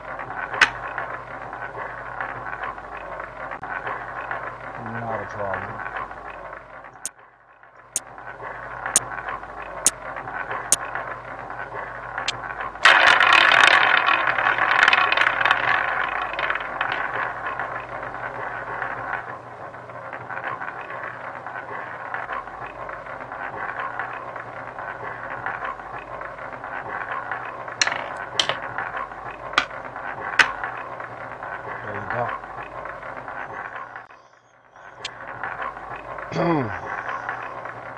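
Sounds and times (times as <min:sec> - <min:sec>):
roulette ball rolling: 0:00.0 - 0:07.1, 0:08.0 - 0:34.1, 0:34.8 - 0:37.9
chips clicking: 0:27.8 - 0:28.7, 0:29.6 - 0:30.6.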